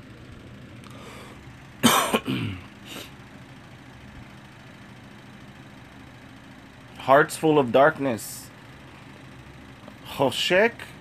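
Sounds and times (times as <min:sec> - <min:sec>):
low background hum: 0:00.0 - 0:11.0
man clearing throat: 0:01.8 - 0:03.1.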